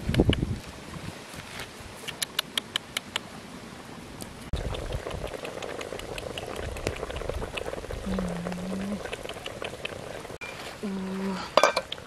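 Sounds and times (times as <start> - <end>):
wood fire crackles: 4.2 - 12.0
soup bubbling: 4.4 - 12.0.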